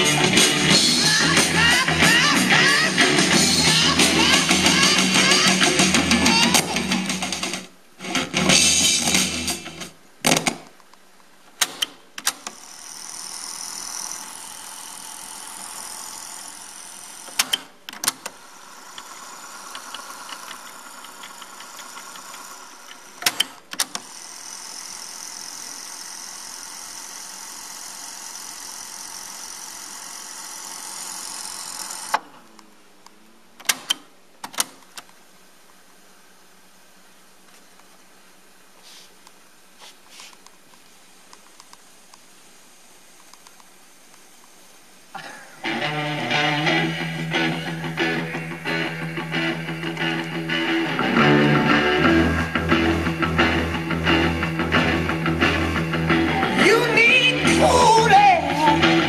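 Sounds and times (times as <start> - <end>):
tape winding whir: 0.0 - 8.3, 11.6 - 34.0
music playback: 0.0 - 10.0, 45.4 - 59.0.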